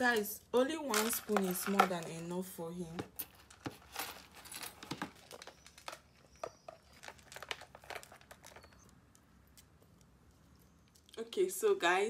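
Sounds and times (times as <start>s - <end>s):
dog crunching dry food: 5.3s - 10.2s.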